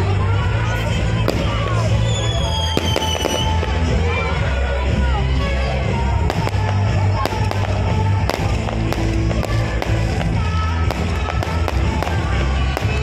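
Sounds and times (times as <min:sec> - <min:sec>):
fireworks bangs: 0:01.2 - 0:04.2, 0:06.1 - 0:13.0.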